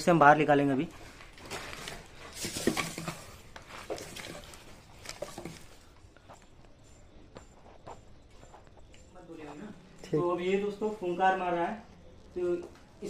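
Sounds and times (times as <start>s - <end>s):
plastic packets rustling: 0.9s - 6.2s.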